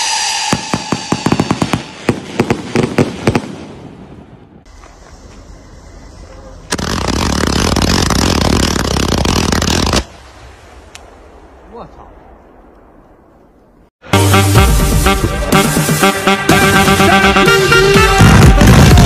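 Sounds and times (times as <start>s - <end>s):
loud fireworks blast: 0.0s - 4.6s, 18.1s - 19.0s
fireworks cracking: 0.5s - 3.8s, 6.7s - 10.1s.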